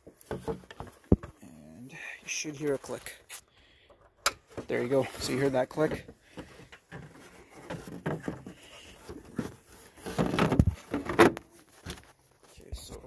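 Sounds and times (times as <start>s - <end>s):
plastic knocks and rubs: 0.0s - 1.4s, 5.8s - 12.1s.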